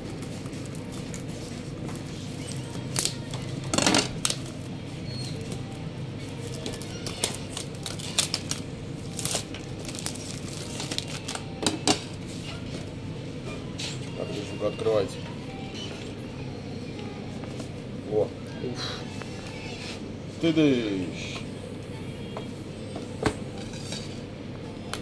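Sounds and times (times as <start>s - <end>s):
plastic crinkling and tearing: 6.4s - 11.4s.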